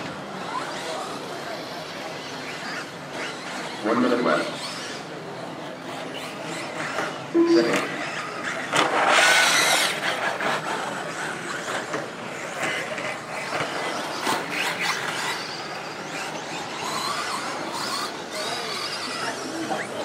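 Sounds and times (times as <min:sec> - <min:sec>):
rc truck motors whining: 0:00.0 - 0:20.0.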